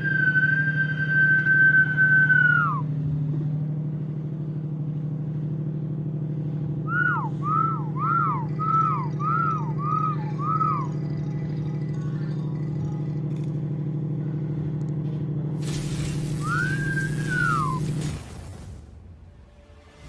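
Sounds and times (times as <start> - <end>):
man whistling: 0.0 - 2.9, 6.9 - 11.0, 16.4 - 17.8
ship engine drone: 0.0 - 20.0.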